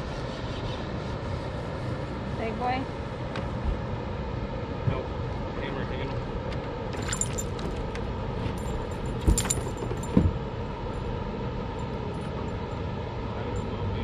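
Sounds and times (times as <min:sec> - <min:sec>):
metallic clinking and jangling: 0:07.0 - 0:07.9, 0:08.5 - 0:10.3
dull thumps on boat deck: 0:09.2 - 0:10.5.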